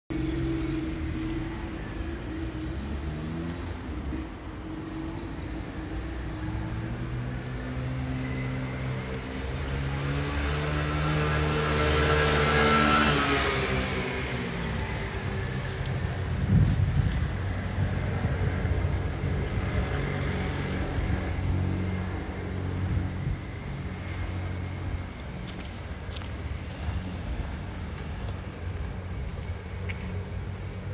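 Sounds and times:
vehicle engine rumbling: 0.1 - 30.9.

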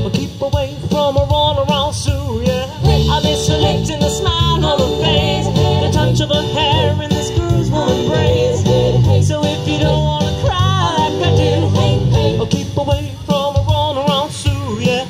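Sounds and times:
bass line: 0.0 - 15.0
drums: 0.0 - 15.0
voices singing in harmony: 2.7 - 13.2.

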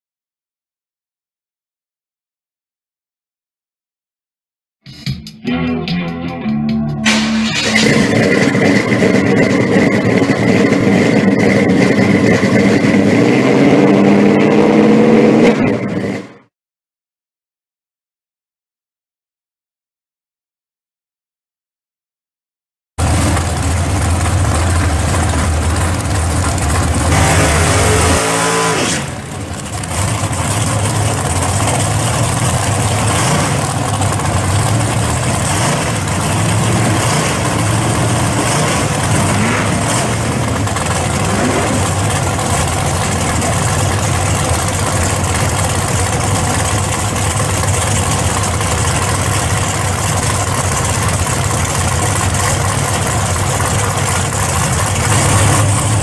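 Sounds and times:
engine rev: 5.8 - 16.5, 23.0 - 56.0
car engine running loud: 7.0 - 16.5, 23.0 - 56.0.

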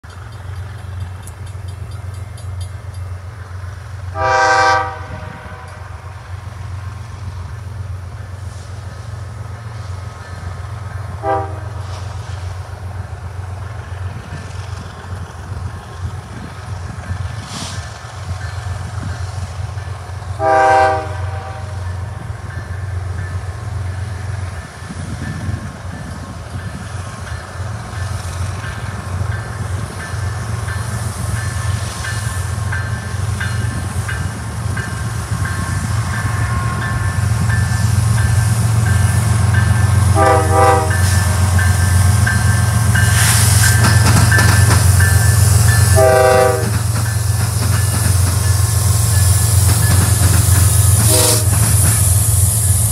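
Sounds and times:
diesel train engine rumble: 0.0 - 52.9
train chime horn blasts: 4.1 - 6.1, 11.1 - 11.9, 20.4 - 22.6, 35.5 - 43.3, 45.0 - 46.9, 51.0 - 51.6.

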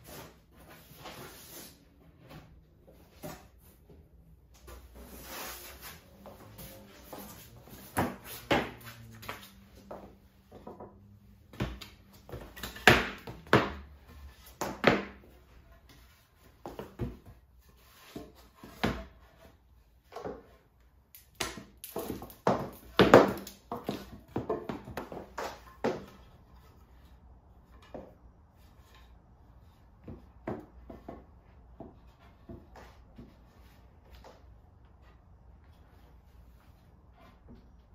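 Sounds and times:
wooden boards knocking and thudding: 10.5 - 13.8, 14.5 - 15.2, 21.4 - 26.3.

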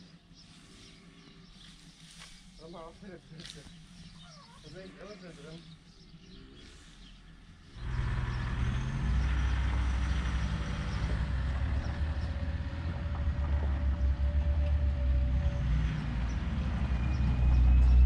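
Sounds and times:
engine droning steadily: 2.6 - 18.0.

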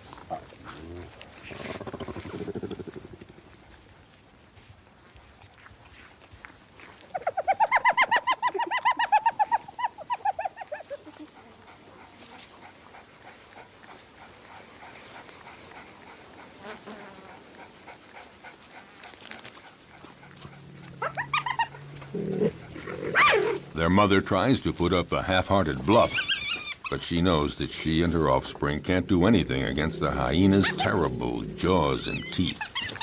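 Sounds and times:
wild animal high-pitched calls: 7.1 - 23.8, 25.8 - 27.0, 29.3 - 33.0.

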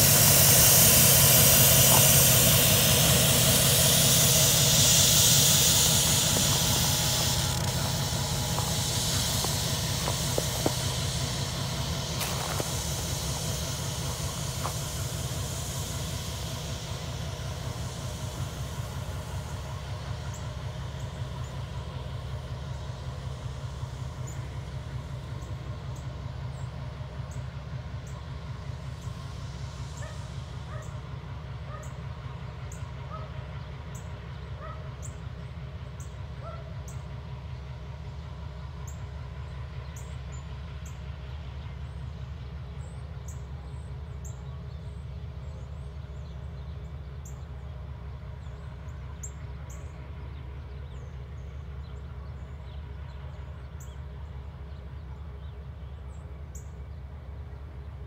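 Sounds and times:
locomotive engines rumbling: 0.0 - 58.0.

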